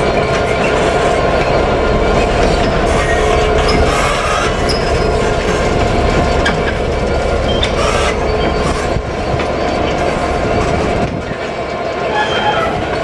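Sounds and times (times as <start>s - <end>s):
diesel locomotive engine rumble: 0.0s - 13.0s
wheels clicking over rail joints: 0.0s - 13.0s
faint wheel squeal: 12.1s - 12.9s.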